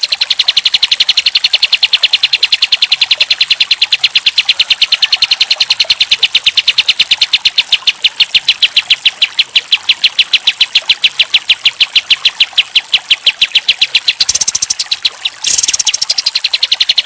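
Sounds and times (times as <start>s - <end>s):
bird singing sharp high notes: 14.0s - 17.0s.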